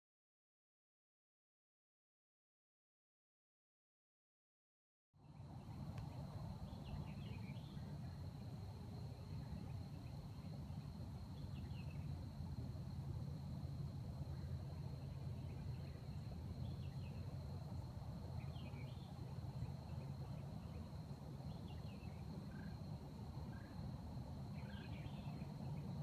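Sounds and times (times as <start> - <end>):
high insect trill: 5.3 - 26.0.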